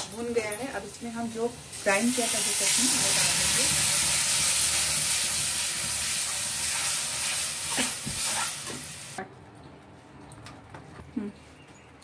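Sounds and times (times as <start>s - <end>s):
chutney sizzling in hot oil: 0.1s - 9.2s.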